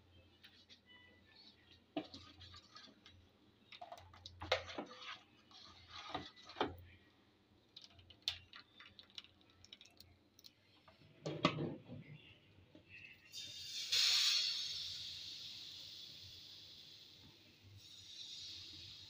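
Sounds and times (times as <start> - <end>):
whisk scraping bowl: 2.0 - 3.1, 4.4 - 6.8.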